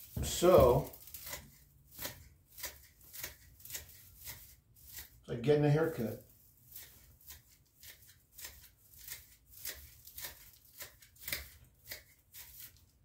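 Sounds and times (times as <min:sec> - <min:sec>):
scissors snipping bristles: 0:00.4 - 0:05.1.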